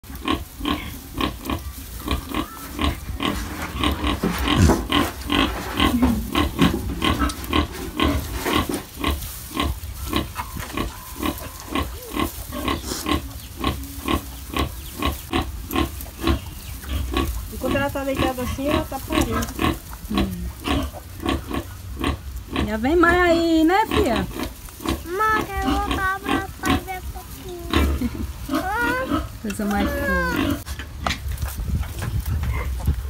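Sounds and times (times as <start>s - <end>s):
sow grunting: 2.1s - 17.3s, 23.8s - 30.7s.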